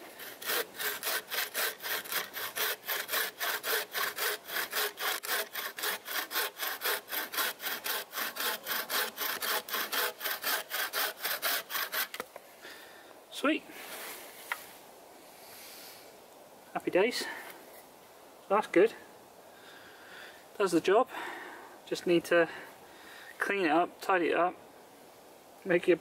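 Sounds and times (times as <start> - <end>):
bow saw cutting log: 0.0 - 12.3.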